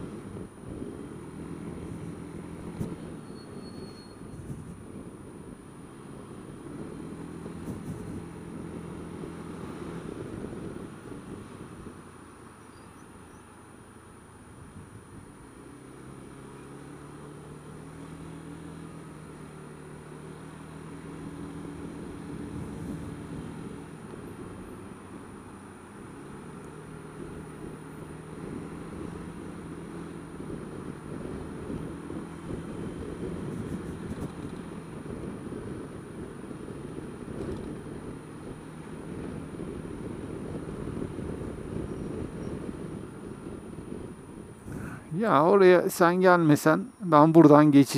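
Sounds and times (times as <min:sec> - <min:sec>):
wind buffeting microphone: 0:06.7 - 0:12.2, 0:21.8 - 0:25.5, 0:27.1 - 0:45.2.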